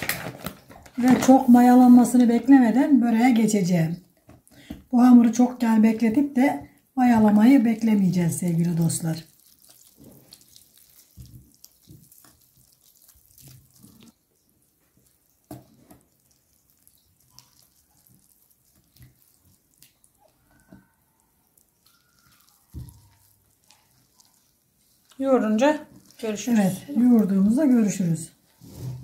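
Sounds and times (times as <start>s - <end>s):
wet dough squishing: 0.0s - 29.0s.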